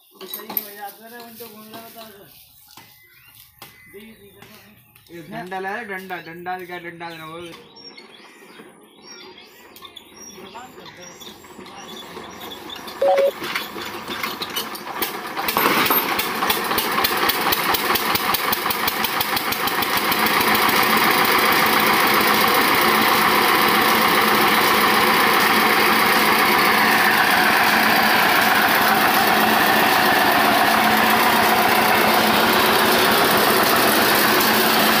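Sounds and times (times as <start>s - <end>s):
diesel engine hand-cranked: 11.4s - 35.0s
diesel engine chugging: 13.7s - 35.0s.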